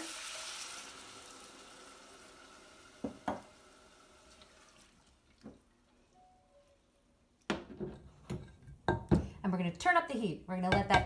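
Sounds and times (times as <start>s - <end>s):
rice sizzling in pot: 0.0s - 4.8s
spatula knocking on pot: 10.7s - 11.0s.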